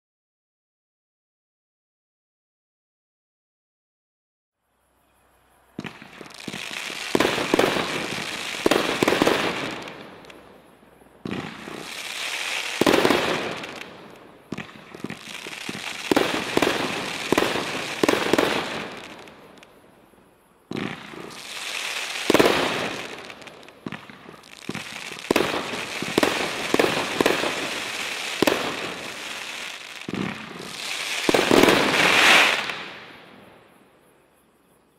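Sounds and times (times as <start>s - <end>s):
firework sizzling crackle: 5.8s - 10.6s, 11.3s - 19.7s, 20.8s - 33.3s.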